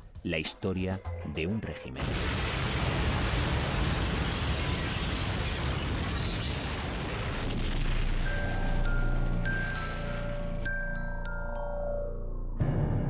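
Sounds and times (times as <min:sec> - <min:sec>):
explosion blast: 0:02.0 - 0:10.3
chiming mallet notes: 0:08.3 - 0:12.6.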